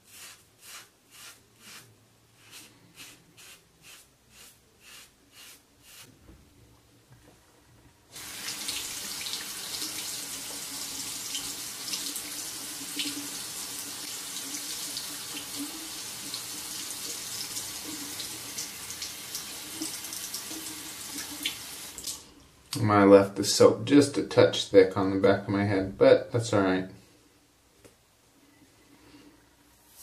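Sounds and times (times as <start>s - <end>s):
tap water running into sink: 8.2s - 22.3s.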